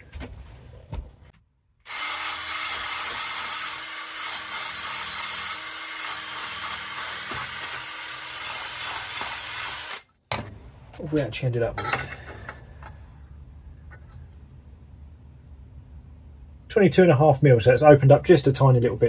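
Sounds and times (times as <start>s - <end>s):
drill motor tone: 1.9s - 10.0s.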